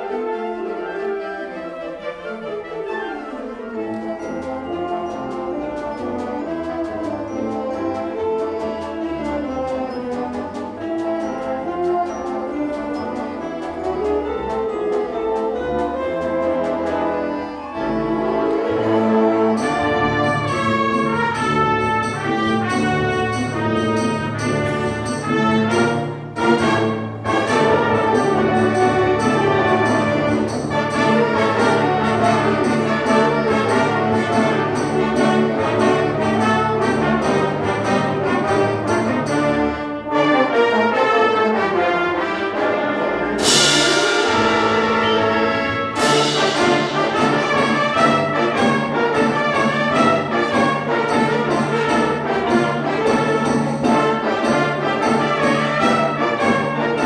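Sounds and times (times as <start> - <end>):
wind band playing: 0.0 - 57.0
cymbal crash: 43.4 - 48.0.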